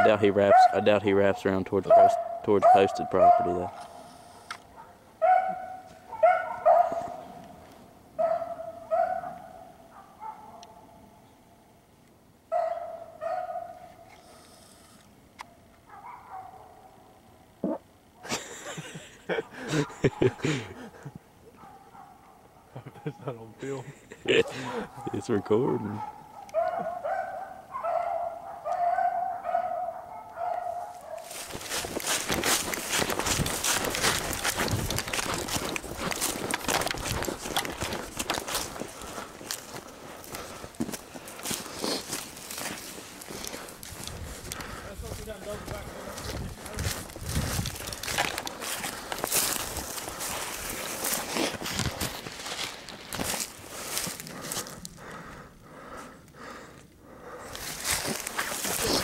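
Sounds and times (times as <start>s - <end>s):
hound baying: 0.0s - 7.5s, 8.2s - 11.1s, 12.5s - 14.1s, 15.8s - 17.2s, 19.6s - 23.1s, 24.3s - 44.9s
rustle of dry leaves and brush: 30.8s - 55.1s, 57.5s - 59.0s.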